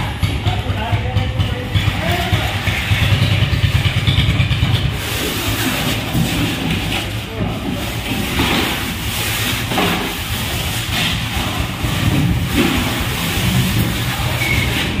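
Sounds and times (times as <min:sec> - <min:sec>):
fish slapping into plastic crates: 0:05.0 - 0:14.8.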